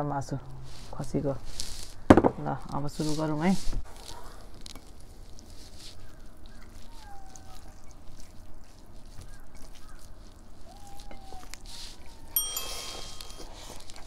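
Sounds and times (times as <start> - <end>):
hands squishing food: 2.8 - 14.0.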